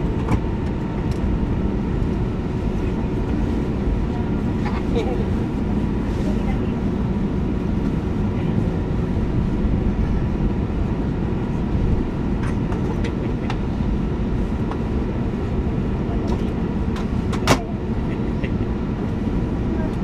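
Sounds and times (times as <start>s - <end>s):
plane engines rumbling while taxiing: 0.0s - 20.0s.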